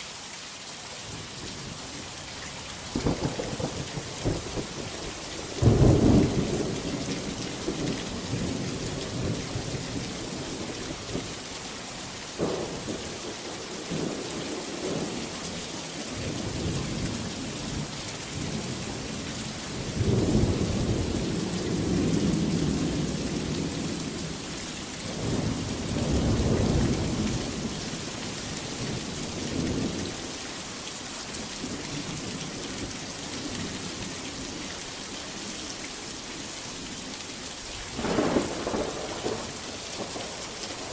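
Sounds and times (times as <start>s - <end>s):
heavy rain: 0.0s - 40.9s
thunder: 38.0s - 40.9s.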